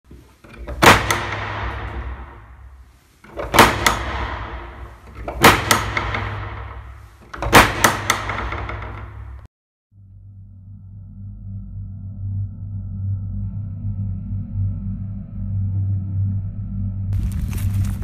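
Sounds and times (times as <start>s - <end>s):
heavy slamming impacts: 0.5s - 9.5s.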